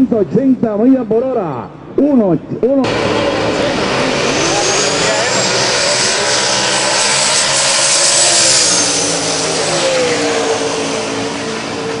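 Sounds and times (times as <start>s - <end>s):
drag car engine with high whine: 2.8s - 12.0s.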